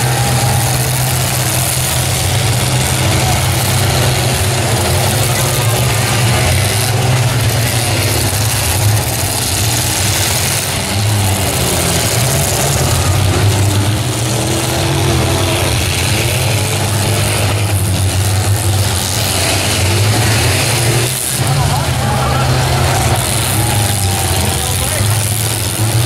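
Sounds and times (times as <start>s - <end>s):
many truck engines revving: 0.0s - 26.0s.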